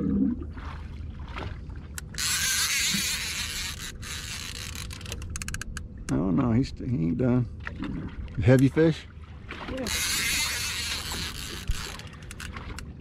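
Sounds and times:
boat engine low rumble: 0.0 - 13.0
fishing reel drag running out: 2.0 - 5.7, 9.8 - 12.8.

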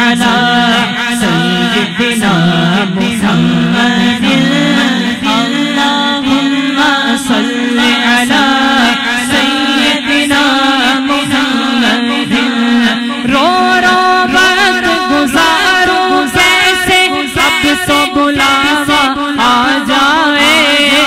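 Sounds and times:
man singing into a microphone: 0.0 - 21.0
steady low drone: 1.2 - 8.8.

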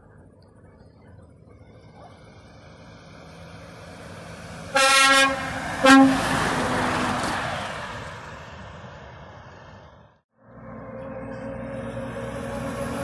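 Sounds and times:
passing truck engine and tyres: 0.0 - 13.0
truck horn blasts: 4.7 - 6.4.

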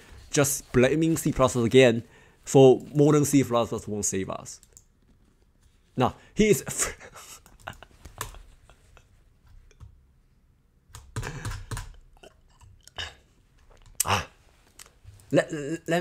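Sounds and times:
computer keys clicking: 4.6 - 5.0, 10.9 - 12.0.

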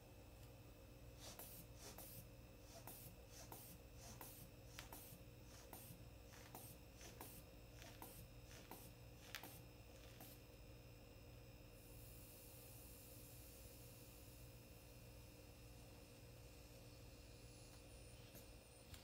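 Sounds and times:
rubber hand bulb pumping hisses: 1.2 - 10.4.

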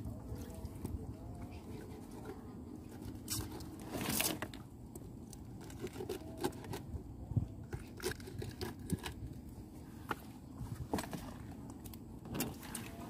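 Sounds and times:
low steady rumble: 0.0 - 13.0
rough scraping and tearing: 3.2 - 4.6.

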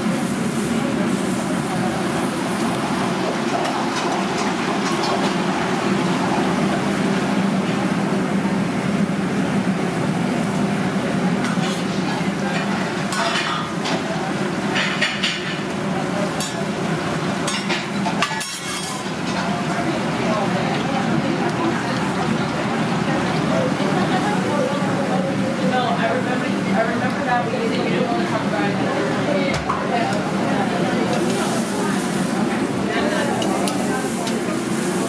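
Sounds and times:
steady noisy hum: 0.0 - 35.0
metal utensils clinking and scraping: 17.5 - 19.5.

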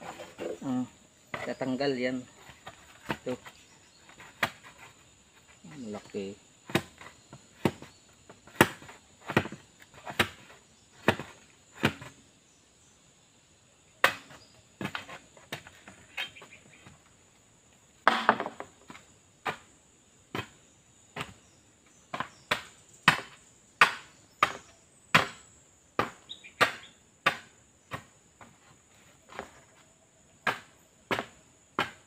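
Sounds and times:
bar knocking into bamboo poles: 18.0 - 18.7.

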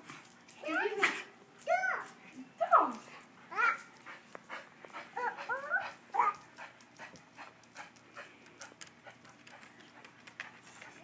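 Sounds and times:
dog panting: 2.9 - 11.0.

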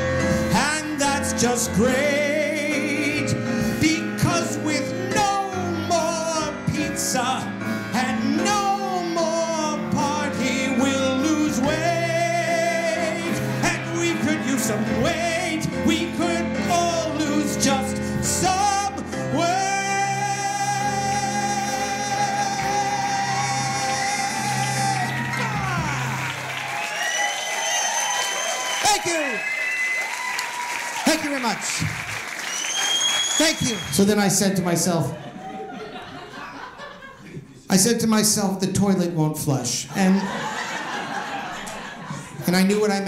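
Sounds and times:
man singing: 0.0 - 26.3.

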